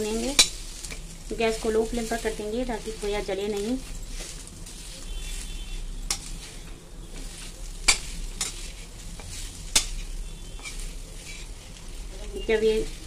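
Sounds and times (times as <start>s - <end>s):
faint sizzle: 0.0s - 13.0s
metal spatula scraping pan: 4.1s - 13.0s
spatula clinking on pan: 6.1s - 6.4s.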